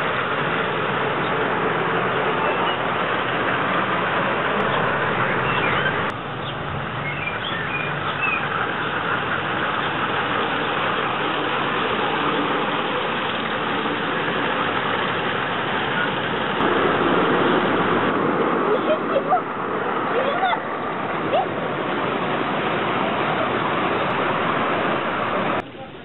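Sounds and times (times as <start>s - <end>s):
train wheels rolling on rails: 0.0s - 26.0s
bird chirps: 2.4s - 3.0s, 4.6s - 9.2s.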